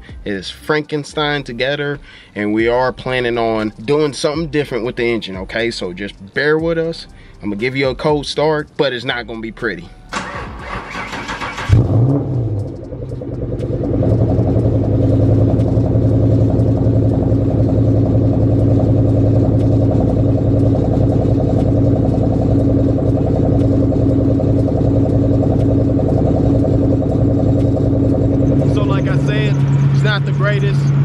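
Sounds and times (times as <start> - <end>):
car engine starting and idling roughly: 9.8 - 31.0.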